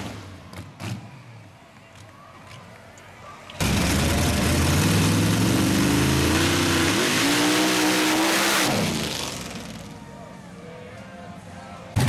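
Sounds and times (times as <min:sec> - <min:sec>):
supercharged engine at full throttle: 0:03.6 - 0:09.7.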